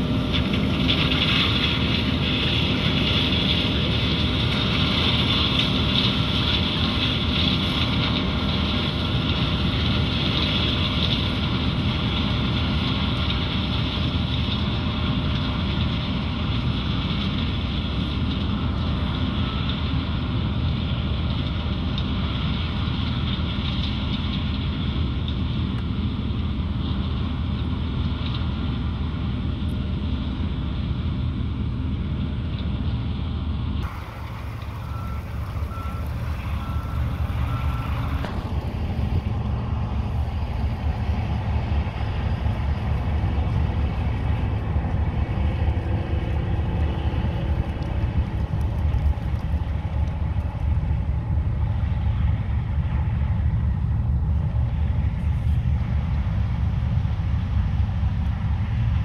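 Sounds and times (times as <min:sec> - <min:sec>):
diesel engines droning: 0:00.0 - 0:59.0
backup alarm beeping: 0:33.9 - 0:39.1.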